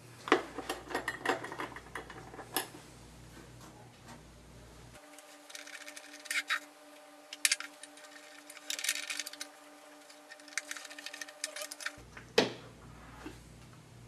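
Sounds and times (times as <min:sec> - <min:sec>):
faint steady hum: 0:00.0 - 0:14.0
screwdriver metallic clicks and scrapes: 0:05.4 - 0:06.7, 0:07.4 - 0:12.0.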